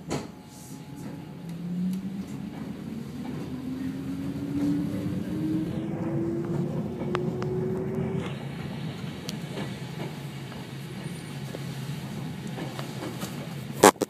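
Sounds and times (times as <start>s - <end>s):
electric train rumble and whine: 0.0s - 14.0s.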